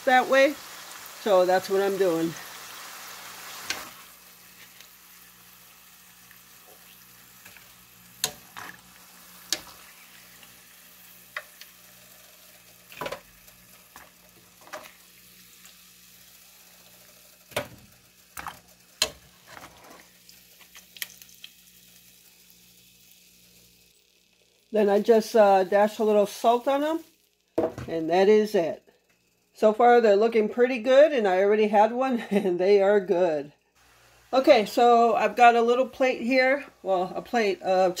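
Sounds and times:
food frying in hot oil: 0:00.0 - 0:29.5, 0:33.8 - 0:38.0
metal tongs clicking on pan: 0:07.4 - 0:08.8, 0:09.4 - 0:09.8, 0:18.4 - 0:19.2.

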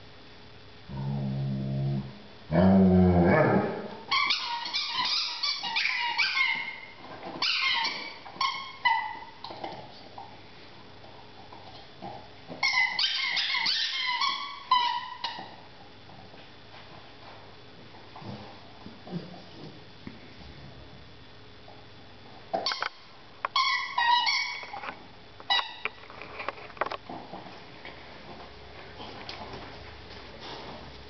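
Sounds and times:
low drawn-out dog vocal sounds: 0:00.9 - 0:04.0
squeaky dog toy squeaks: 0:04.1 - 0:06.7, 0:07.4 - 0:09.2, 0:12.6 - 0:15.4, 0:23.6 - 0:24.7.

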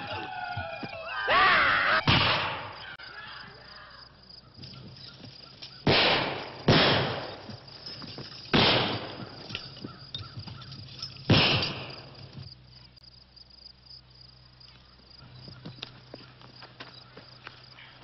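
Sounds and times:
gunshots: 0:02.0 - 0:02.8, 0:05.8 - 0:07.5, 0:08.5 - 0:09.4, 0:11.3 - 0:12.1.

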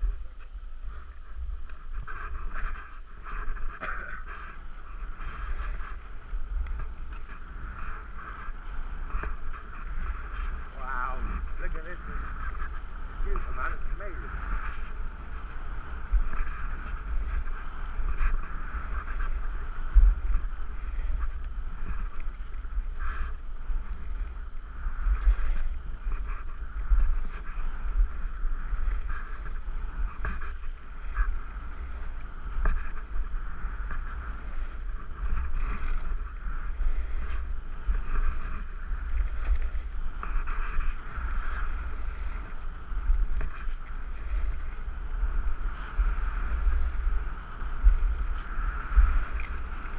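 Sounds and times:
skis scraping over snow: 0:00.0 - 0:49.9
wind rumble on microphone: 0:00.0 - 0:49.9.

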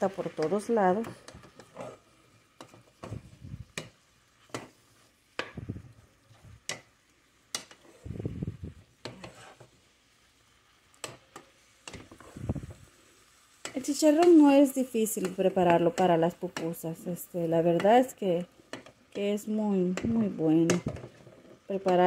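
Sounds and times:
wooden spoon stirring in a steel pot: 0:00.0 - 0:08.3, 0:08.9 - 0:09.9, 0:11.0 - 0:13.0, 0:13.6 - 0:22.0.

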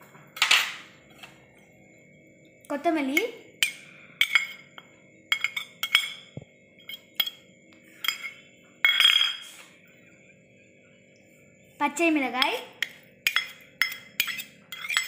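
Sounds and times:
kitchenware clatter: 0:00.0 - 0:01.3, 0:03.2 - 0:07.4, 0:08.0 - 0:09.6, 0:12.4 - 0:15.0
kitchenware clinking on bowl: 0:00.4 - 0:00.8, 0:03.2 - 0:07.4, 0:08.0 - 0:09.5, 0:12.4 - 0:15.0.

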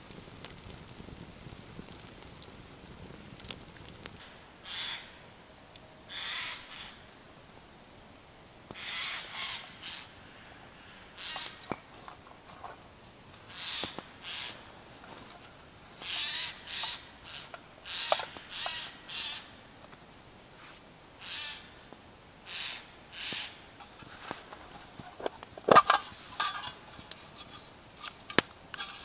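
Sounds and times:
campfire snapping: 0:00.0 - 0:04.3, 0:11.3 - 0:19.0, 0:23.3 - 0:29.0.

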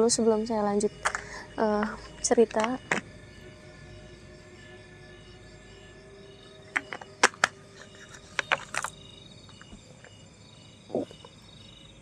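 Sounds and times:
crickets chirping: 0:00.0 - 0:12.0
bottle set down: 0:06.8 - 0:08.9
plastic bottle crinkling: 0:06.8 - 0:08.9.

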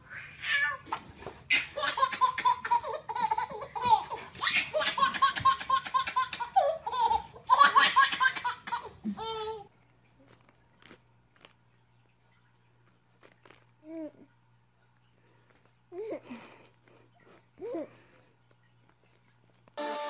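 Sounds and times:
baby laughing: 0:00.1 - 0:09.7.

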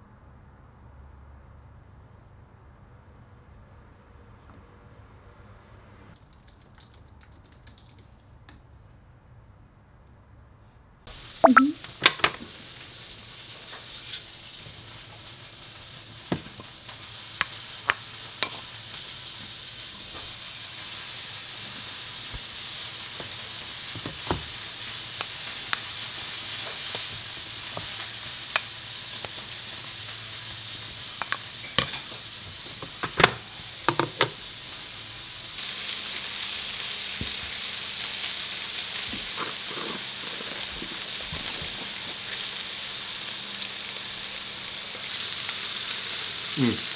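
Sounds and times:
meat sizzling on hot plate: 0:11.1 - 0:46.9.

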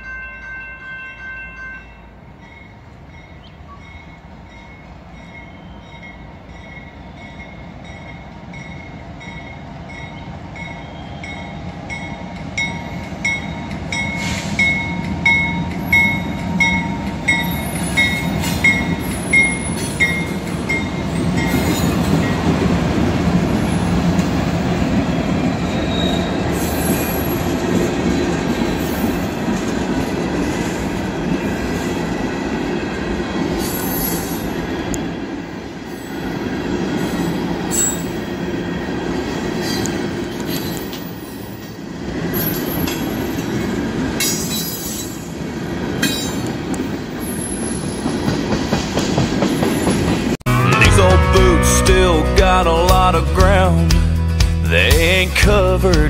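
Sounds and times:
level-crossing bell ringing: 0:00.0 - 0:21.7
train wheels rumbling on rail: 0:02.8 - 0:50.4
diesel locomotive rumble: 0:50.2 - 0:56.0.

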